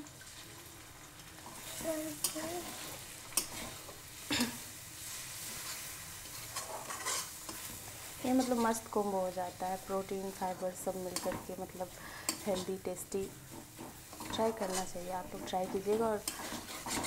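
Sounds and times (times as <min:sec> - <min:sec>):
egg sizzling in hot oil: 0:00.0 - 0:17.0
metal spatula scraping pan: 0:01.6 - 0:04.0, 0:05.0 - 0:08.9, 0:13.4 - 0:17.0.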